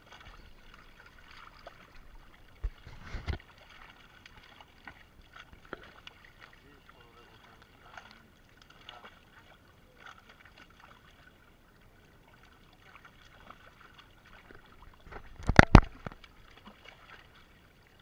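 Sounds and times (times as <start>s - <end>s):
fish slapping water surface: 0.0s - 6.6s, 12.4s - 17.4s
fish thrashing and splashing: 0.0s - 11.3s, 12.5s - 18.0s.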